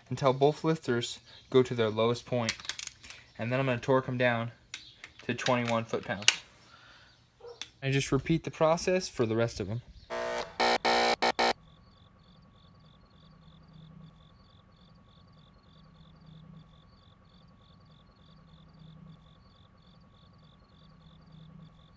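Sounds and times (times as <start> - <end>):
faint steady hum: 10.1 - 21.9
cricket chirping: 11.5 - 21.9.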